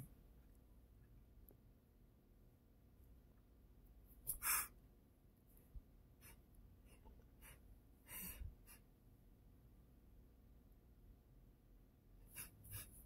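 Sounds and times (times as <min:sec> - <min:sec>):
man sniffing: 0:04.3 - 0:04.7.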